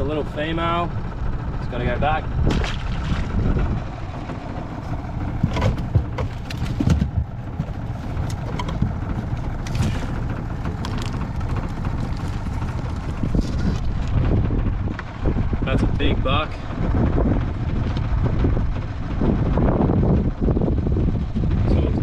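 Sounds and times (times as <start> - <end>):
steady low rumble: 0.0 - 22.0
crab pot knocks and rattles: 5.4 - 12.8.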